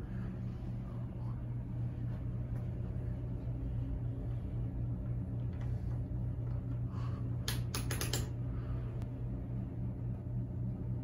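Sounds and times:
ceiling fan motor hum: 0.0s - 11.0s
sharp clicks: 7.4s - 8.3s.

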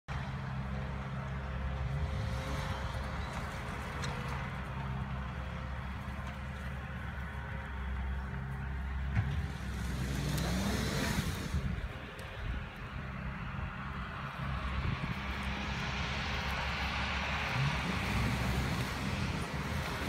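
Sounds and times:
suv engine running: 0.1s - 20.0s.

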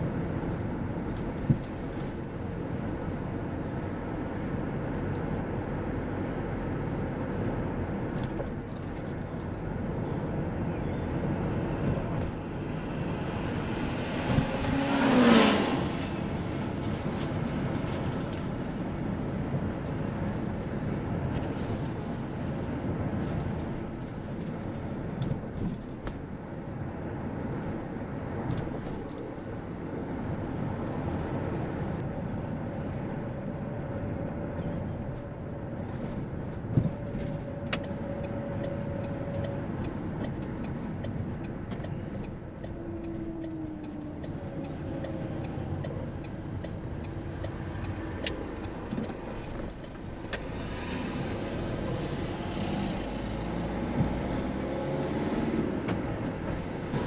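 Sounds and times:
traffic noise: 0.0s - 57.0s
regular ticking: 37.8s - 50.4s.

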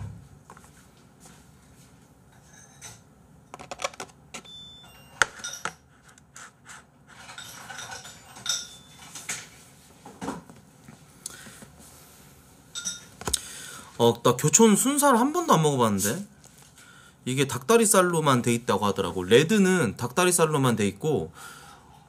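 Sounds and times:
dishes and cutlery clinking: 2.4s - 3.1s, 4.8s - 5.9s, 7.2s - 9.6s, 12.7s - 13.3s.

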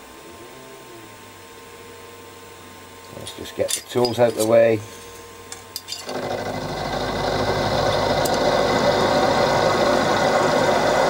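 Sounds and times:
milling machine spindle motor: 6.0s - 11.0s.

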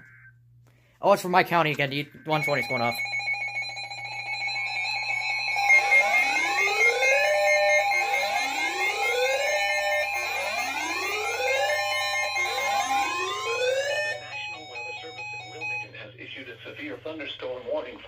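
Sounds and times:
steady high alert tone: 1.0s - 16.2s
rising whoop siren: 5.0s - 15.3s.

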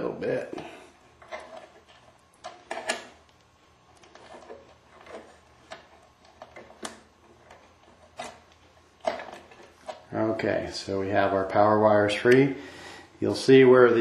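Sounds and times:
clicks and rustles of wires: 0.6s - 10.2s.

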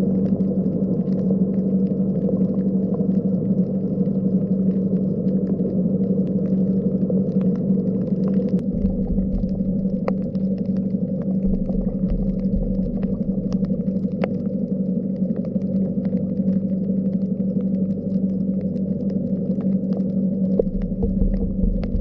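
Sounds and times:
low mechanical hum: 0.0s - 22.0s
low rumble: 0.0s - 22.0s.

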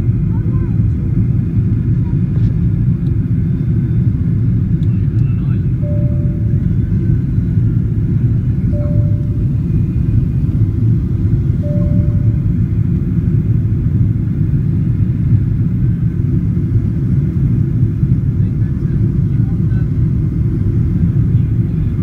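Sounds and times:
aircraft cabin engine rumble: 0.0s - 22.0s.

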